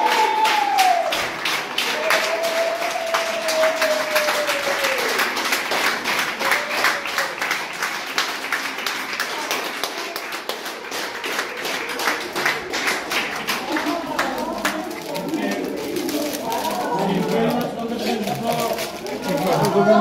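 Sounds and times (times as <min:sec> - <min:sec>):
crowd clapping: 0:00.0 - 0:20.0.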